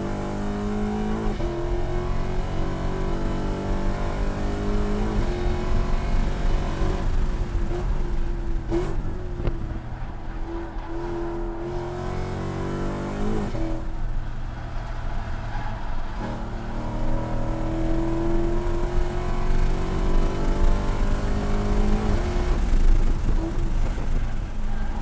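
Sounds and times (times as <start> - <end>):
car engine at full throttle: 0.0 - 25.0.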